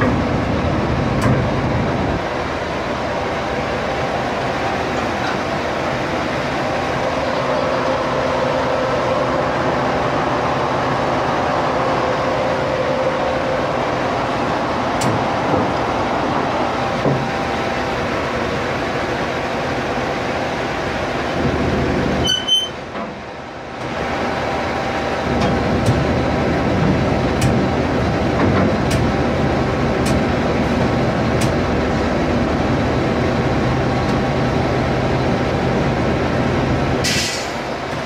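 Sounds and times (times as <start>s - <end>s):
diesel engine running with whine: 0.0s - 38.0s.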